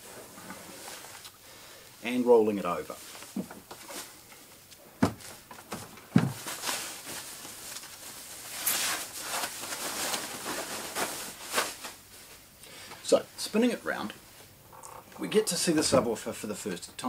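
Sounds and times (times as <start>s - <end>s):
plastic bag rustling: 5.0s - 12.5s.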